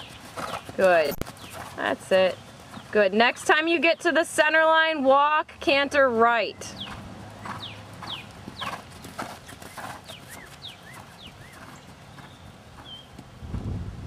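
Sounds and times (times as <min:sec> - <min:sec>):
horse hoofbeats on sand: 0:00.0 - 0:04.4, 0:06.7 - 0:13.4.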